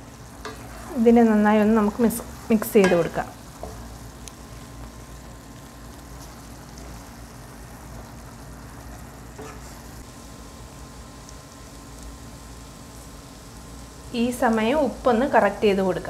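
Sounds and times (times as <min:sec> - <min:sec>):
food sizzling in a pan: 0:00.0 - 0:16.0.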